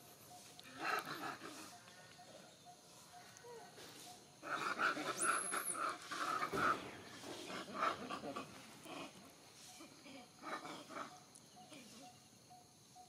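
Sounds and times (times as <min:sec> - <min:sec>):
monkeys squabbling: 0:00.6 - 0:01.9, 0:04.4 - 0:12.0.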